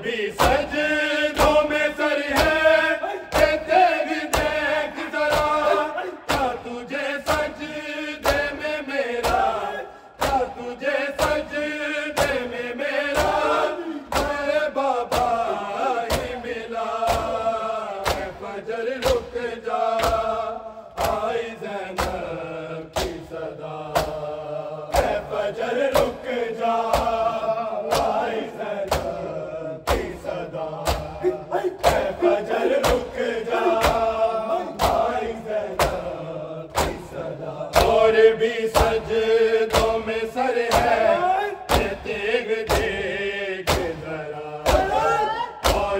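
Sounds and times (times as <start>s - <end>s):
men chanting a lament: 0.0s - 45.9s
hands slapping chests: 0.4s - 18.4s, 19.0s - 38.1s, 38.7s - 41.0s, 41.7s - 42.0s, 42.7s - 43.0s, 43.6s - 45.9s.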